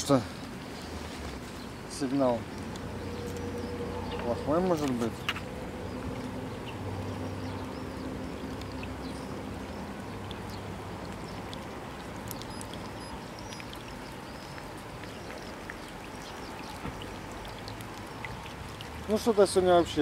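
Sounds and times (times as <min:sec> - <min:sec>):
light rain hissing: 0:00.0 - 0:20.0
small ticks: 0:02.5 - 0:06.3, 0:08.3 - 0:19.3.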